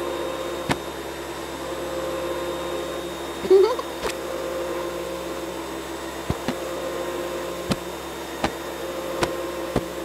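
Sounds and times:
vacuum cleaner whirring: 0.0s - 10.0s.

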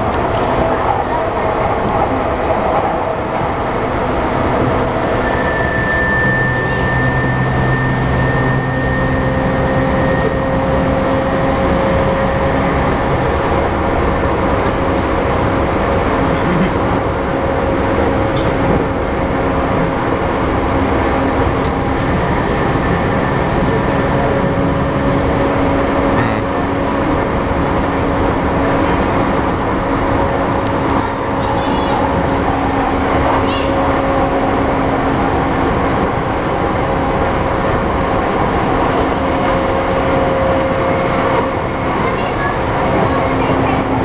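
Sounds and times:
train wheels rumbling on rail: 0.0s - 44.0s
traction motor whine: 4.5s - 13.3s.

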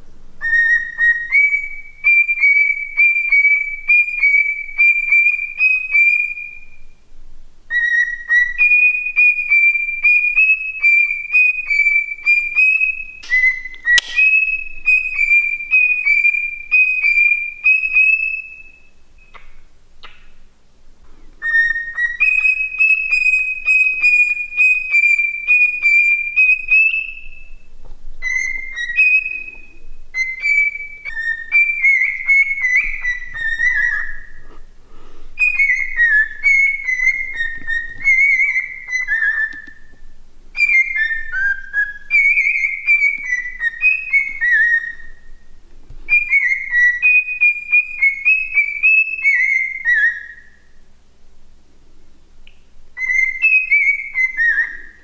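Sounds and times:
cockatiel whistling: 0.4s - 6.9s, 7.7s - 20.2s, 21.4s - 34.7s, 35.4s - 40.0s, 40.6s - 45.5s, 46.1s - 50.7s, 53.0s - 55.0s
sharp click: 13.2s - 14.6s.

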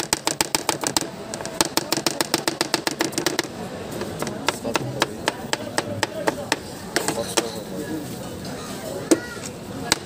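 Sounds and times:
knife chopping on plastic board: 0.0s - 3.5s, 4.1s - 7.5s.

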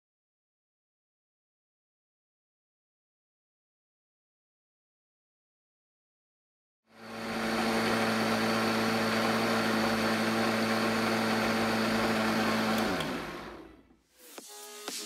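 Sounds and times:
blender motor whining: 6.9s - 13.9s.

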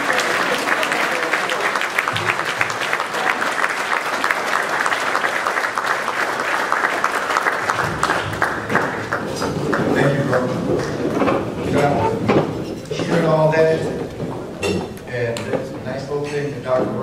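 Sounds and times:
large audience applauding: 0.0s - 11.3s.

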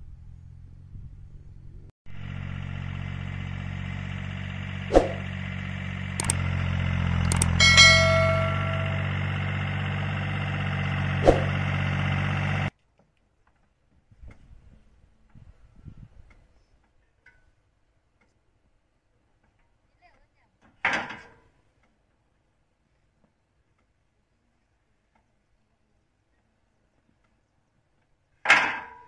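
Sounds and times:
diesel tractor engine running: 0.0s - 12.7s
sharp metallic clangs: 7.3s - 9.4s.

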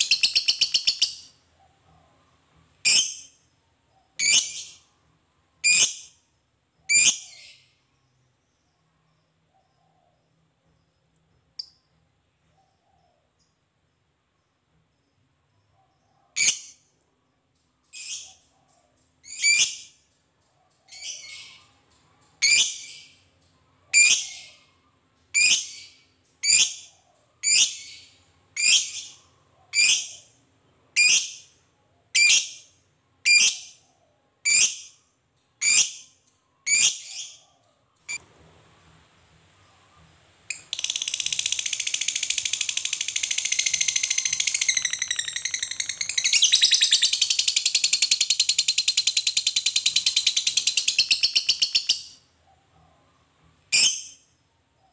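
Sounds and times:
lovebird calling: 40.5s - 52.2s.

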